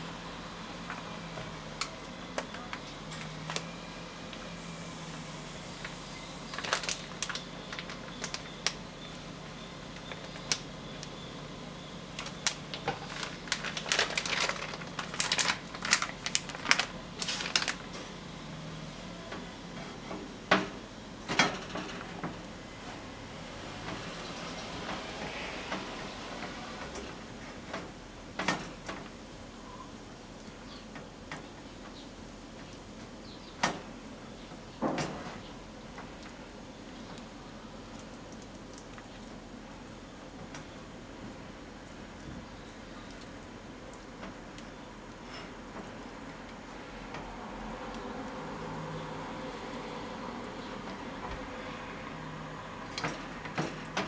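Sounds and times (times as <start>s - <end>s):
flour bag crinkling: 5.8s - 8.8s, 12.2s - 17.9s.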